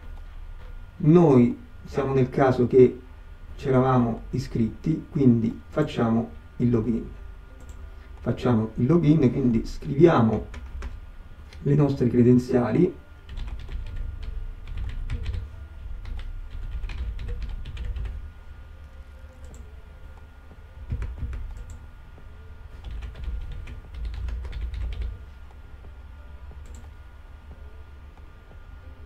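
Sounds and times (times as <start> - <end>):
typing on computer keyboard: 10.3 - 11.0, 13.3 - 18.2, 20.9 - 21.8, 22.8 - 25.2.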